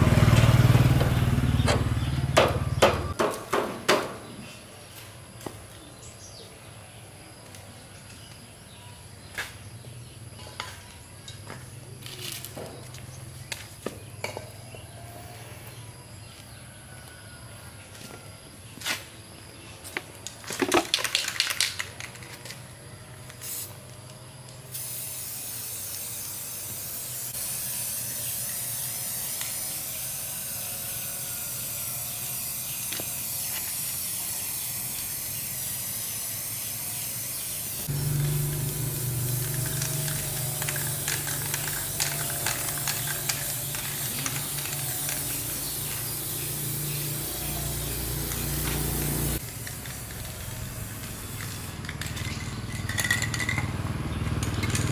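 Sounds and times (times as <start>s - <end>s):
sharp knocks: 1.0s - 4.2s
spray paint can hissing: 23.2s - 53.7s
scattered clicks: 39.4s - 45.6s.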